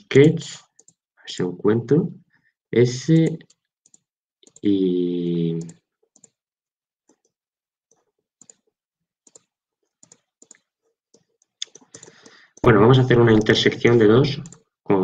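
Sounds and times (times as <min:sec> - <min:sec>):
computer mouse clicks: 0:00.7 - 0:01.0, 0:03.1 - 0:04.8, 0:05.6 - 0:06.4, 0:07.0 - 0:08.6, 0:09.2 - 0:14.7.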